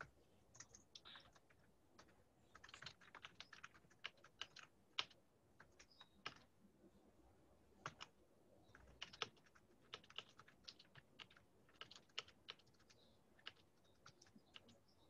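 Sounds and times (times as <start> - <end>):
faint keyboard typing: 0.0 - 6.6, 7.8 - 15.0.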